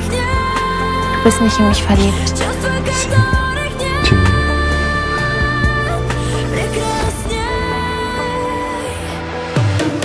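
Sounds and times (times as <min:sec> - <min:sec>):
pop song with synth and bass: 0:02.0 - 0:05.2
person singing: 0:02.9 - 0:04.8.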